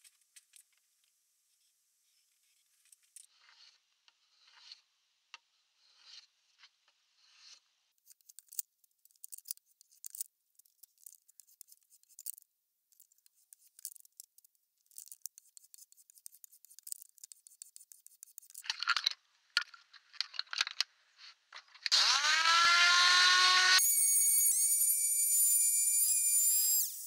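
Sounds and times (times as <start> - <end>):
electric sander whine: 21.9 - 27.0.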